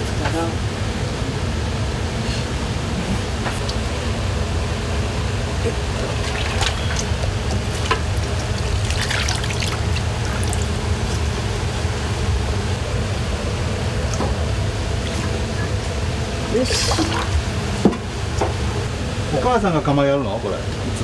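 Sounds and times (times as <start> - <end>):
tap water running: 3.6 - 4.3, 5.6 - 12.4, 16.5 - 18.0
noodles splashing into water: 6.0 - 11.6.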